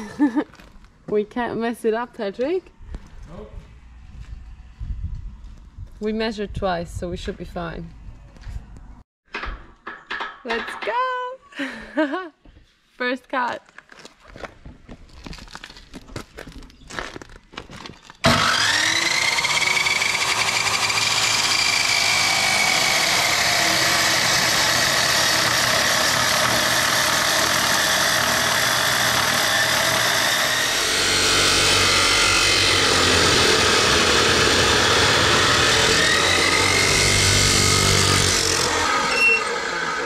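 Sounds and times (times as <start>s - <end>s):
cut-off saw grinding steel: 18.2s - 40.0s.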